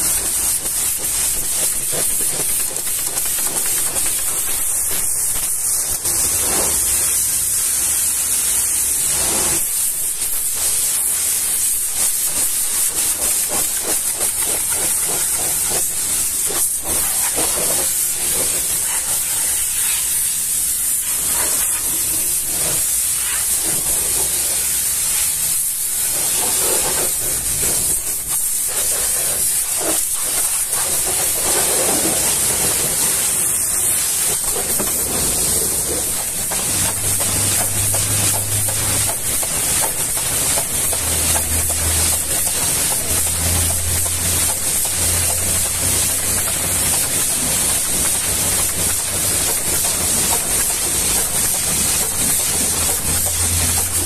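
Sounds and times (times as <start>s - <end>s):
pressure washer water hiss: 0.0s - 54.0s
water splashing on wheel: 26.1s - 54.0s.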